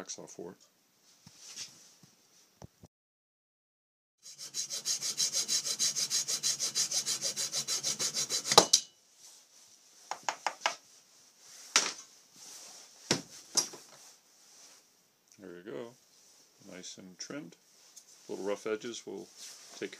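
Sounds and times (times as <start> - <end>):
hacksaw cutting metal: 4.2 - 8.9.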